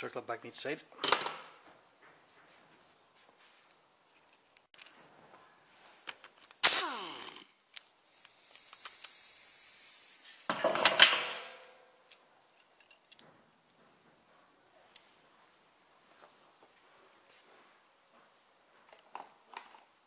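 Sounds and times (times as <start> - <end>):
air wrench bursts: 6.6 - 7.5, 8.1 - 10.6
steady high hiss: 6.6 - 10.6.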